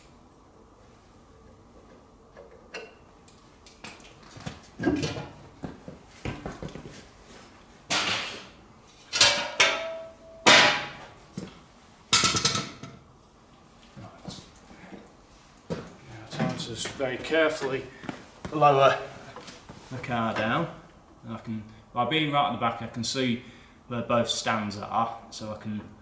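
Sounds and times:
steel clanking and knocking: 9.1s - 11.0s.

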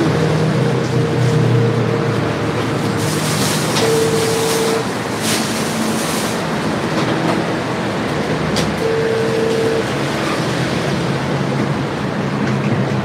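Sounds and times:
short held tone: 3.8s - 4.8s, 8.8s - 9.9s.

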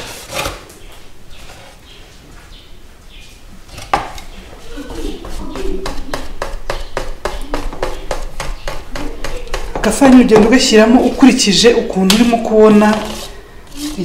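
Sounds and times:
whisk knocking against bowl: 5.2s - 10.7s.

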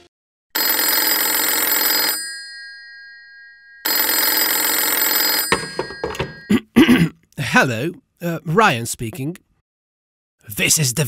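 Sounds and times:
old telephone bell ringing: 0.6s - 6.6s.

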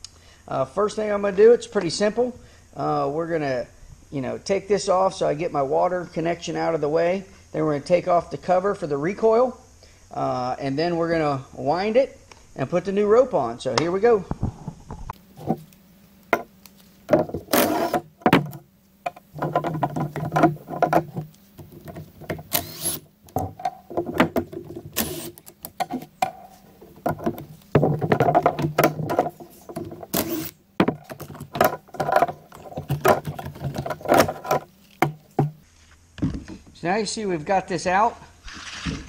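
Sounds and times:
screws and parts clicking: 19.1s - 23.8s, 24.8s - 26.5s, 28.5s - 35.2s
impact driver rattling: 27.0s - 35.6s.

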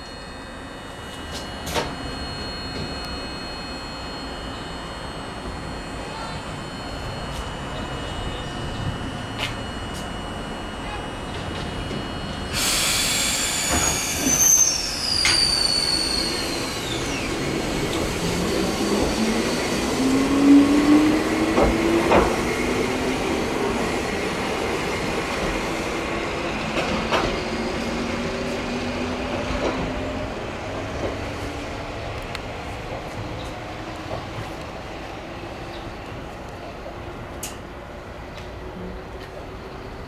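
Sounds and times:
train wheel squeal: 0.0s - 4.9s, 5.6s - 30.2s
electric motor whine: 16.6s - 19.7s.

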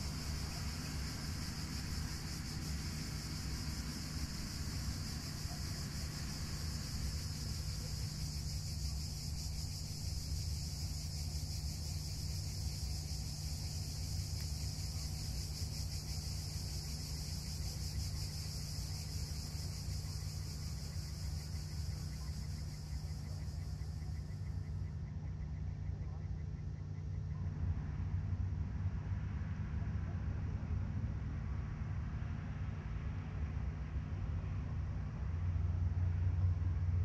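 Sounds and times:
high-pitched insect chorus: 0.0s - 27.2s.

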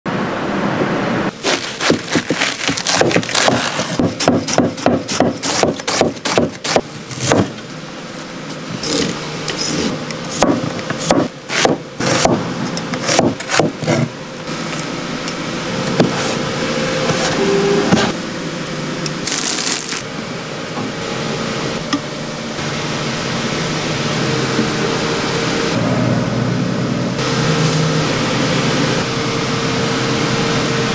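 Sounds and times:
knife chopping on wooden board: 1.4s - 7.5s, 9.8s - 12.4s, 13.0s - 14.1s
knife scraping board: 1.4s - 7.5s, 8.8s - 10.4s, 13.0s - 14.1s, 17.0s - 18.2s.

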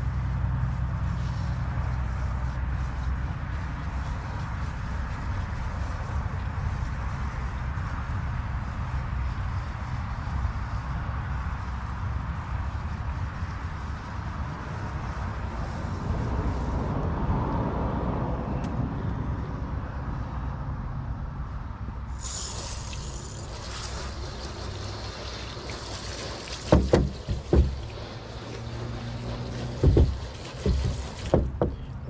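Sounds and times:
hose spraying water on plastic: 0.0s - 17.0s, 22.1s - 31.8s
wind rumble on microphone: 0.0s - 22.1s
heavy thumps: 26.6s - 28.3s, 29.0s - 32.0s.

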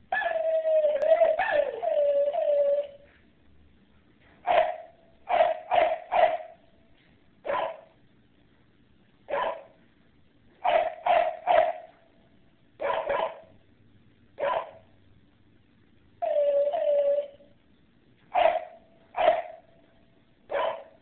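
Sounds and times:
dog barking: 0.1s - 0.4s, 1.2s - 1.9s, 4.4s - 6.6s, 7.4s - 8.0s, 9.3s - 9.8s, 10.6s - 12.0s, 12.8s - 13.6s, 14.4s - 14.9s, 18.3s - 19.7s, 20.5s - 21.0s.

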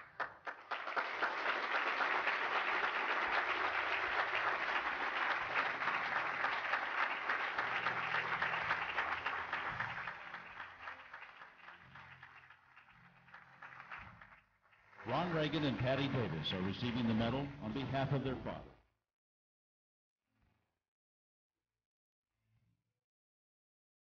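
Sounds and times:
audience applauding: 0.0s - 18.6s.

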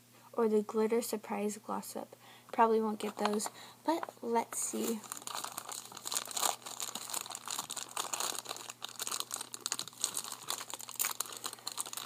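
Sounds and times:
plastic packaging crinkling: 3.0s - 12.0s.

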